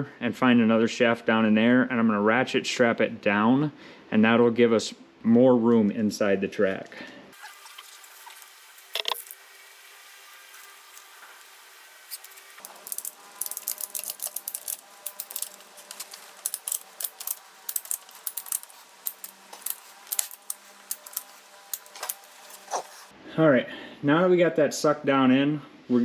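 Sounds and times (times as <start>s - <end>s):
ratchet strap clicking: 12.2s - 22.4s.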